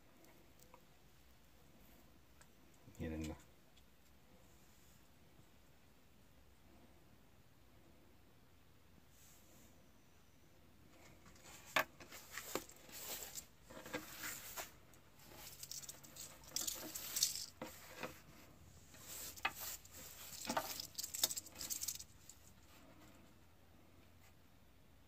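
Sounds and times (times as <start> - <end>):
snake body scraping on stone: 11.3 - 22.6.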